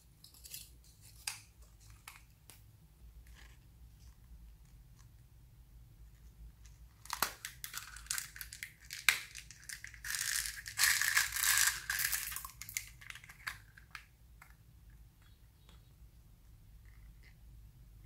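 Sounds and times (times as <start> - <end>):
plastic beads rattling and pouring: 7.7 - 13.6.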